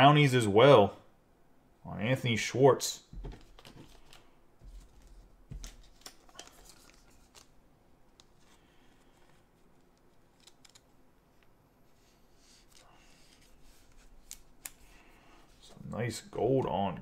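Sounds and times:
small plastic clicks: 0:10.3 - 0:11.0.

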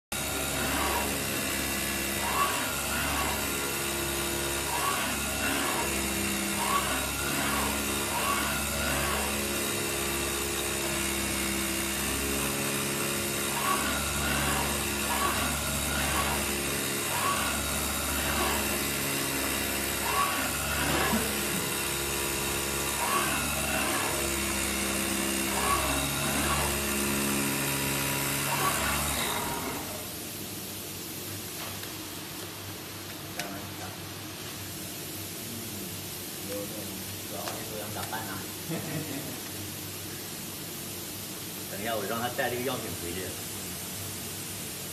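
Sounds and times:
cutting machine hum and whines: 0:00.1 - 0:30.2.

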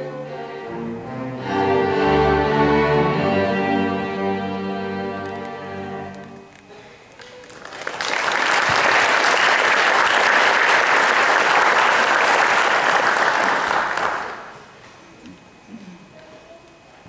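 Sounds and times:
audience applauding: 0:07.2 - 0:14.6.

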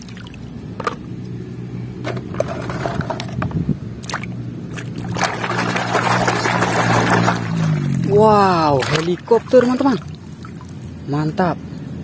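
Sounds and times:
toy splashing in muddy water: 0:04.0 - 0:10.9.

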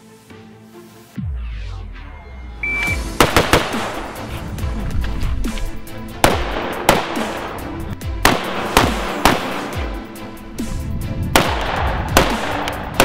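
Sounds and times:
background music: 0:00.0 - 0:13.0
rifle shots: 0:02.9 - 0:04.2, 0:06.2 - 0:07.5, 0:08.2 - 0:09.8, 0:11.4 - 0:13.0.

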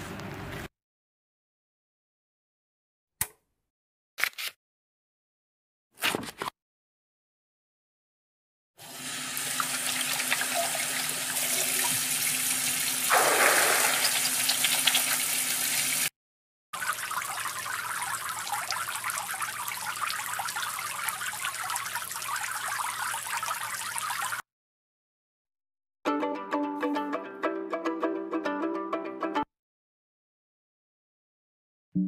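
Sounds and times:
water with fine crackle: 0:09.6 - 0:16.1, 0:16.8 - 0:24.4
water splashing: 0:13.1 - 0:16.0.

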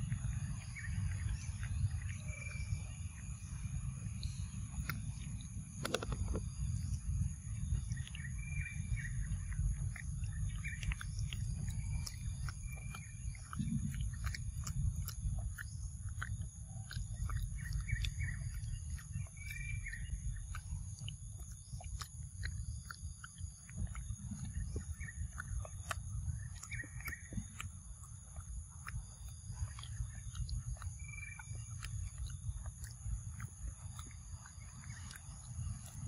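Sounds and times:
low rumble: 0:00.0 - 0:36.0
small clicks: 0:05.8 - 0:06.5.

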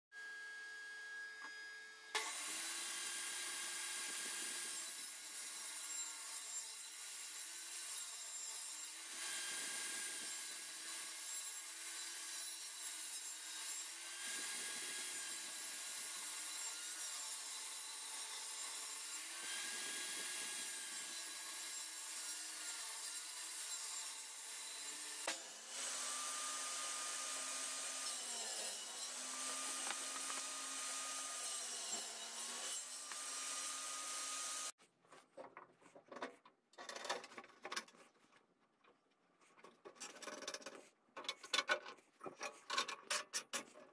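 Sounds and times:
table saw cutting wood: 0:00.2 - 0:34.8.

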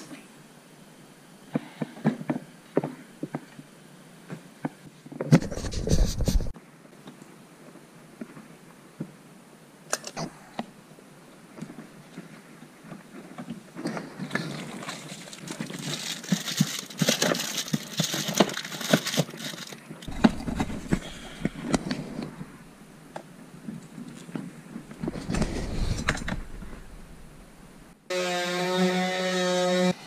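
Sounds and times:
rustling and scraping: 0:05.1 - 0:06.6, 0:11.6 - 0:28.0
low rumble: 0:20.1 - 0:23.2, 0:24.8 - 0:28.0.

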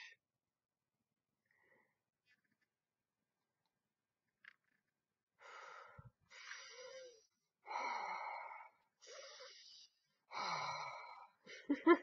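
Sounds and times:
raspy wheezing breaths: 0:05.4 - 0:11.5.

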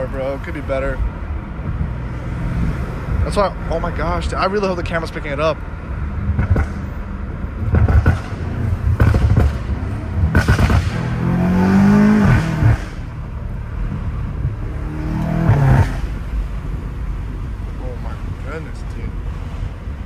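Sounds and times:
car engine revving: 0:00.7 - 0:20.0
exhaust pops and crackles: 0:06.3 - 0:06.9, 0:07.6 - 0:11.2.

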